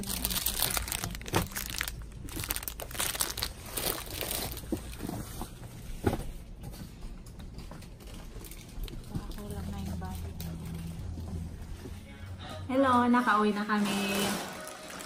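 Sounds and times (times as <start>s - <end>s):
plastic packaging crinkling: 0.0s - 5.3s, 13.7s - 15.0s.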